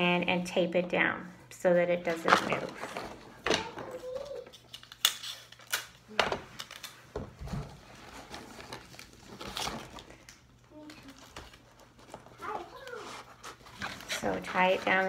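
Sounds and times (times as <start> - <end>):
sticky tape pulled and torn: 4.1 - 6.0
paper handling: 6.6 - 15.0.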